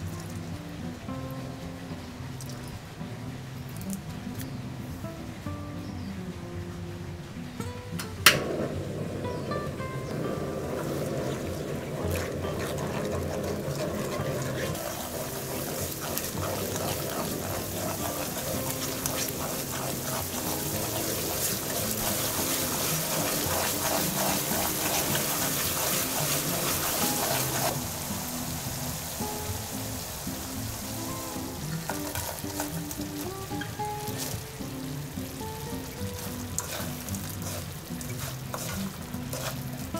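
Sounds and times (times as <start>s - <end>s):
sauce bubbling and sizzling in a pan: 0.0s - 6.7s, 8.2s - 39.9s
background music: 0.0s - 39.9s
wooden spoon stirring: 10.7s - 27.8s, 31.7s - 34.5s, 35.9s - 39.9s.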